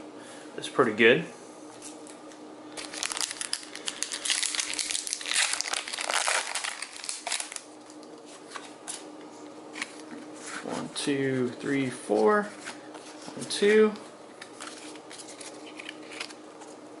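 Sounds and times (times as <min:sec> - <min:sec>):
foil wrapper crinkling: 0:02.8 - 0:08.0.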